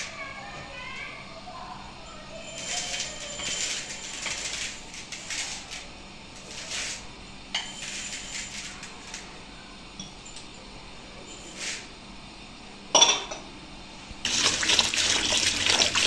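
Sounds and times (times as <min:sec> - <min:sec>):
rice pouring into plastic bowl: 0:14.3 - 0:16.0.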